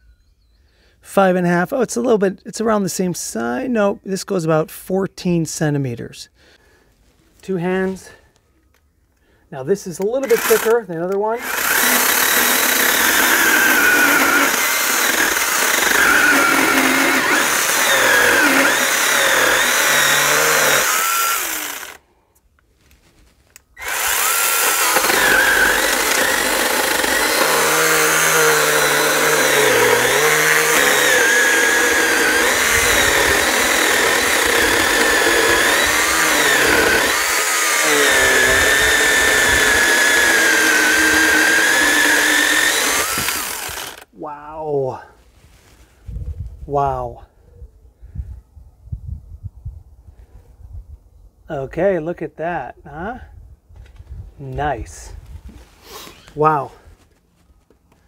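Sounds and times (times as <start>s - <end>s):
mini chainsaw cutting log: 10.0s - 22.0s, 23.8s - 44.1s.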